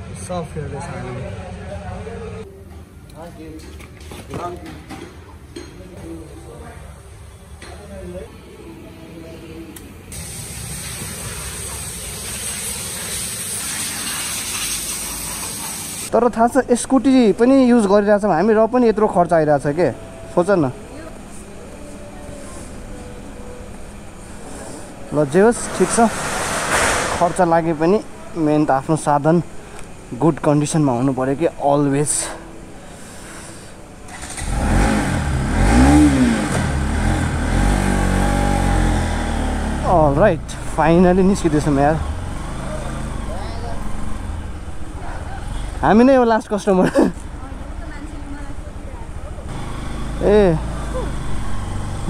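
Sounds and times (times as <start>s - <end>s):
hissing spray of water hose: 10.1s - 16.1s
motorcycle engine starting and revving: 34.0s - 46.0s, 47.3s - 52.0s.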